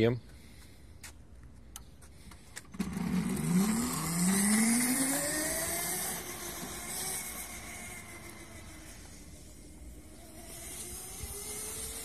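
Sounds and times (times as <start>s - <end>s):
electric motor whine rising: 2.7s - 12.0s.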